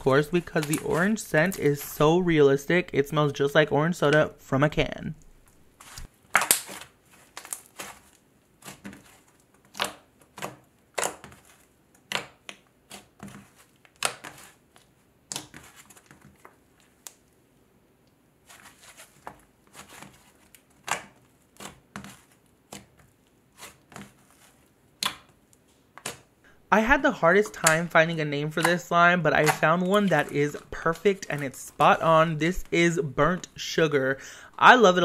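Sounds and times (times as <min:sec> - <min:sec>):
slime squished with crackling pops: 0:06.0 - 0:09.0.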